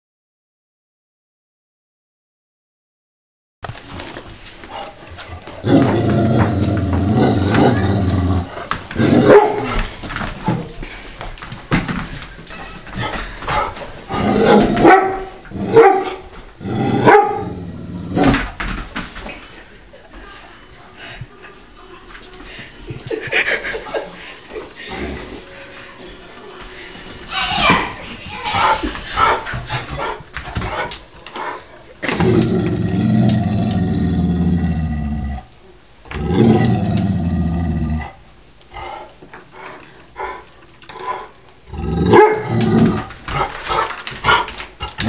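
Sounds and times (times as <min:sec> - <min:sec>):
animal growling low: 0:05.6 - 0:09.3, 0:16.6 - 0:18.3, 0:32.1 - 0:35.4, 0:36.1 - 0:38.2, 0:41.7 - 0:43.1
dog barking: 0:09.2 - 0:09.7, 0:14.5 - 0:16.2, 0:17.0 - 0:17.4, 0:42.1 - 0:42.5.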